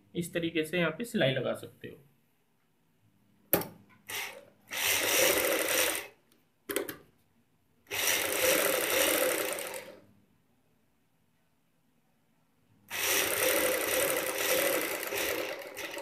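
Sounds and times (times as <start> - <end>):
sewing machine running: 4.1 - 6.2, 7.9 - 10.0, 12.9 - 16.0.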